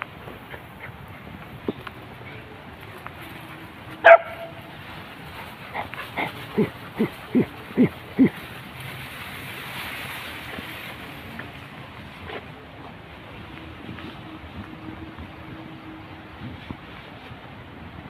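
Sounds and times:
dog barking: 4.0 - 4.6.

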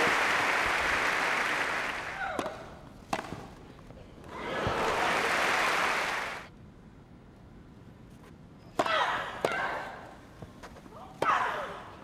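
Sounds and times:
crowd applauding: 0.0 - 2.2, 4.4 - 6.5.

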